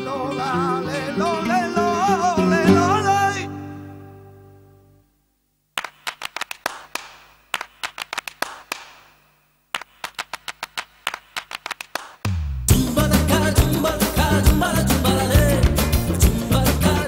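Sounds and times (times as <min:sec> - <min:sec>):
hand claps with echo: 0:05.8 - 0:12.3.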